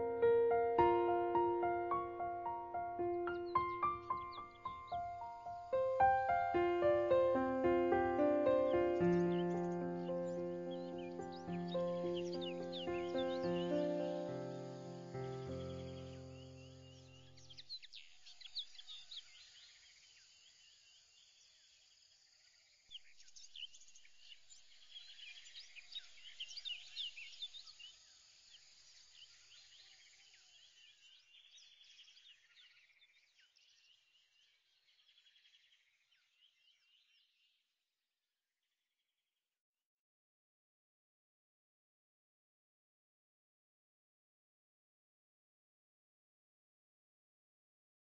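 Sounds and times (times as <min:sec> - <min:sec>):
small birds chirping: 0:00.0 - 0:37.6.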